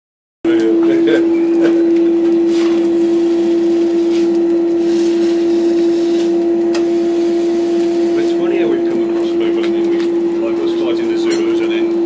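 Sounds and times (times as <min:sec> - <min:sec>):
loud steady hum: 0:00.5 - 0:12.0
hot steel hissing in water: 0:02.4 - 0:09.5.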